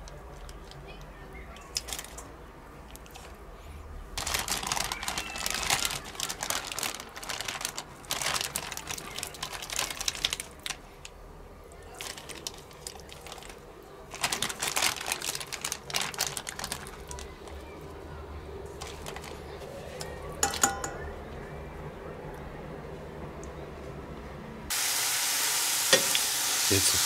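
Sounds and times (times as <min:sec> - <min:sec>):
meat sizzling in a frying pan: 0:24.7 - 0:27.0.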